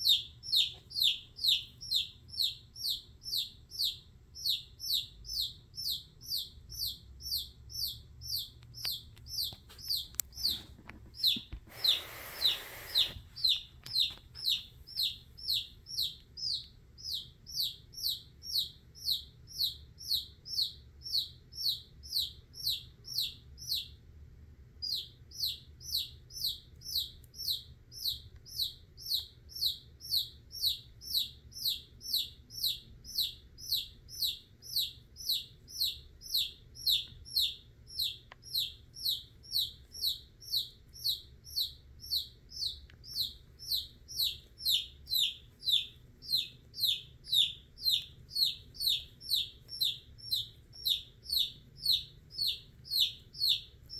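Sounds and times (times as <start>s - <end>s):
chick peeping in distress: 11.2s - 19.2s.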